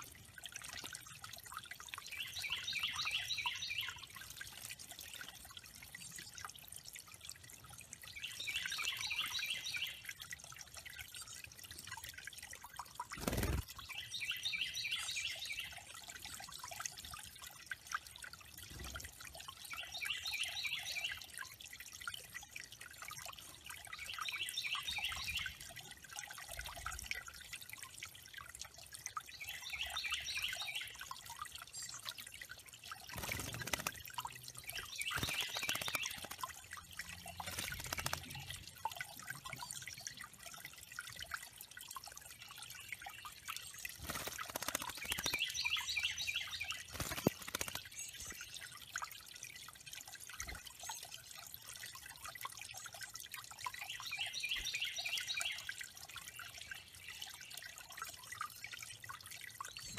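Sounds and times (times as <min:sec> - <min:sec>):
waterfall trickling into pond: 0:00.0 - 0:59.9
bird splashing in water: 0:33.0 - 0:34.3, 0:35.0 - 0:38.4, 0:43.8 - 0:45.8, 0:46.5 - 0:47.9.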